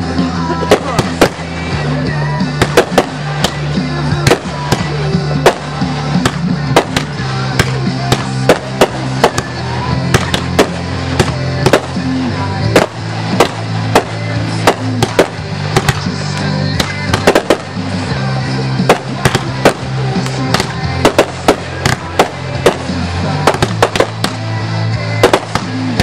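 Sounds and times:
firework shells bursting: 0.7 - 1.6, 2.5 - 18.1, 18.7 - 24.5, 25.2 - 26.0.

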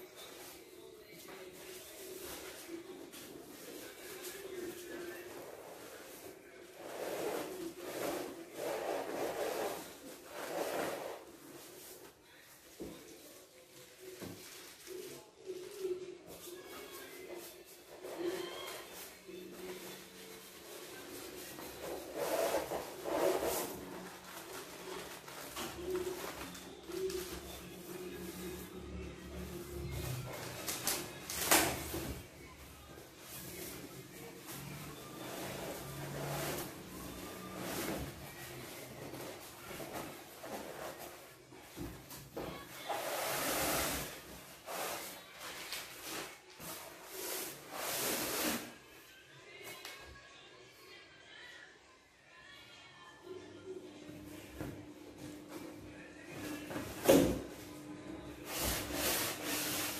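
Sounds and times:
cardboard rubbed and scraped: 5.5 - 11.9, 21.1 - 25.1, 42.9 - 45.2, 46.0 - 48.7
cardboard scraping against carton: 6.8 - 11.3, 21.8 - 24.0.

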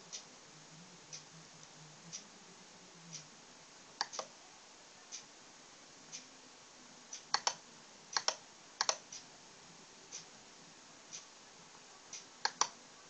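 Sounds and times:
sharp mechanical clicks: 7.1 - 9.2, 12.1 - 12.8
faint ticks: 7.1 - 9.3, 12.1 - 12.8.

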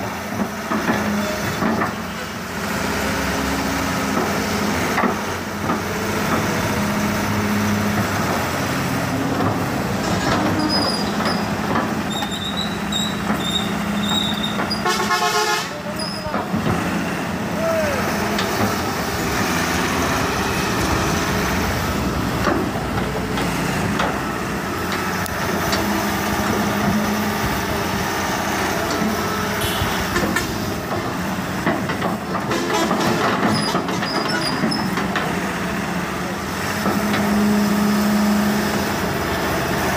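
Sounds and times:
excavator diesel engine running: 0.0 - 39.9
bucket and arm clanking: 30.0 - 35.4.

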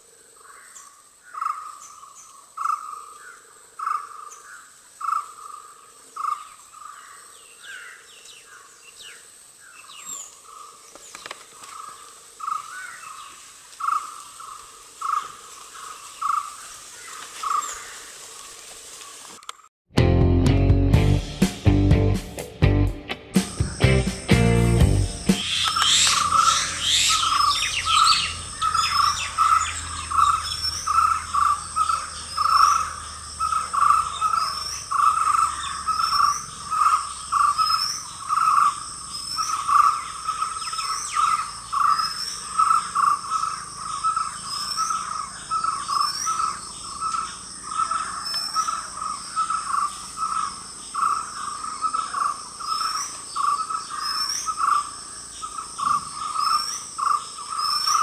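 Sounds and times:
repeating bird call: 23.3 - 36.4
high insect buzz: 23.4 - 58.0
short rising chirp: 25.1 - 29.1.

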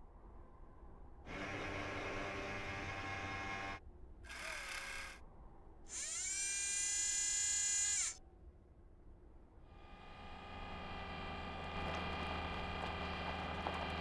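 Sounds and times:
electric servo motor whirring: 1.3 - 5.2, 5.9 - 8.2, 9.8 - 14.0
motor whine rising in pitch: 5.9 - 8.2, 9.8 - 14.0.

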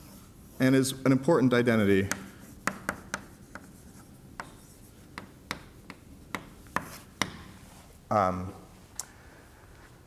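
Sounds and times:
chalk tapping and scratching: 2.0 - 7.7.

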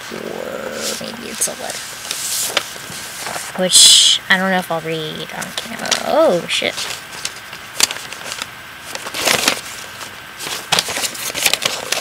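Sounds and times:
sharp paper crackle: 0.8 - 3.5, 5.7 - 12.0
paper crinkling and rustling: 0.8 - 3.6, 5.4 - 12.0.

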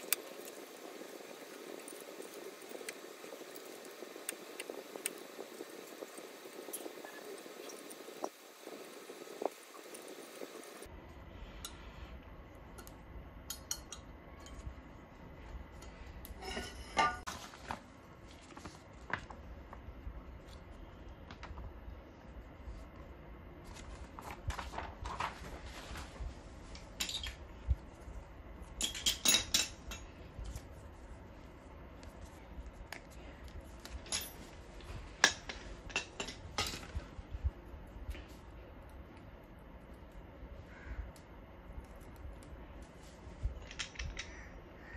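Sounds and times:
metal parts and screws clinking: 15.8 - 17.2, 28.8 - 30.1, 34.0 - 34.5.

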